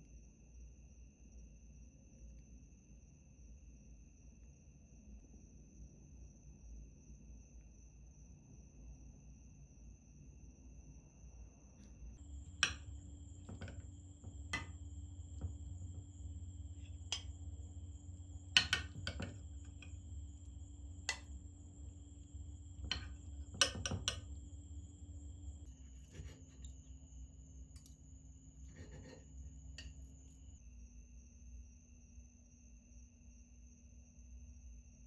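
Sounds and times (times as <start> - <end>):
metal spoon scraping glass dish: 25.8 - 26.9, 28.6 - 30.0.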